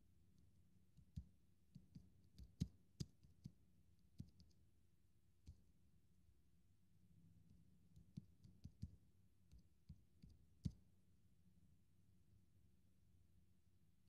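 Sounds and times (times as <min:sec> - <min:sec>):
tapping on touchscreen keyboard: 0:01.0 - 0:04.6, 0:07.9 - 0:10.8.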